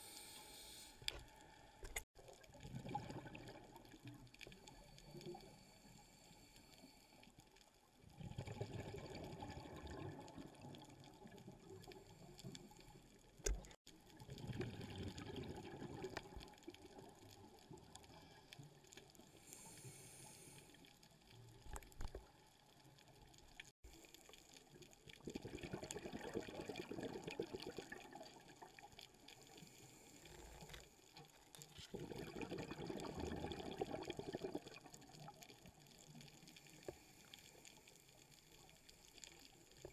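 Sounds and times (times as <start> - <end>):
underwater bubbling: 0.0 - 6.3, 7.4 - 39.9.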